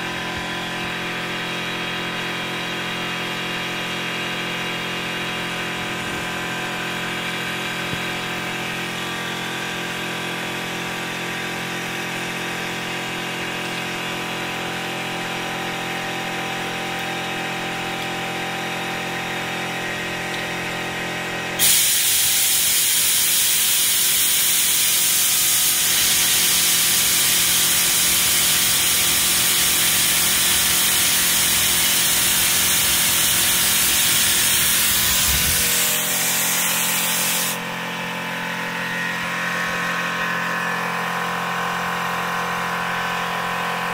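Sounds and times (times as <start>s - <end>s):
compressed air rushing through nozzle: 21.6s - 37.6s.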